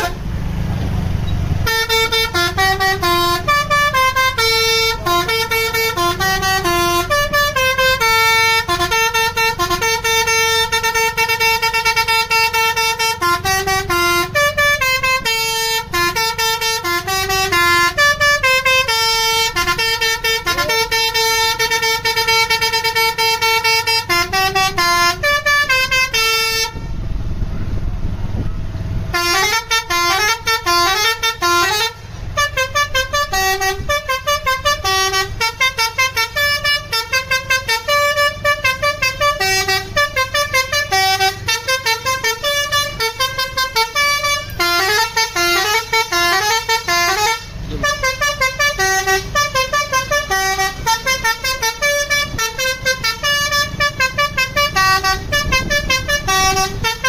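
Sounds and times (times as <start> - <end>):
multi-tone bus horn tune: 0.0 - 0.4, 1.6 - 27.1, 28.4 - 57.0
low rumble: 26.8 - 29.2.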